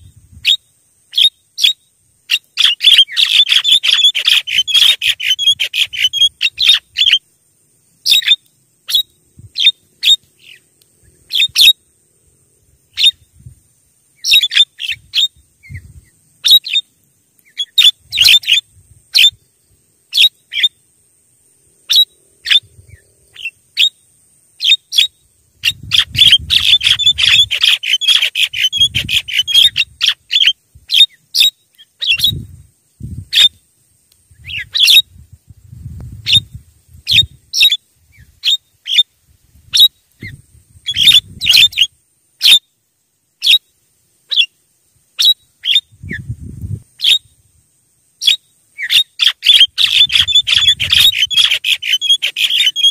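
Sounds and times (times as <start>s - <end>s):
myna calling: 0.4s - 7.2s, 24.6s - 32.4s, 48.2s - 52.9s.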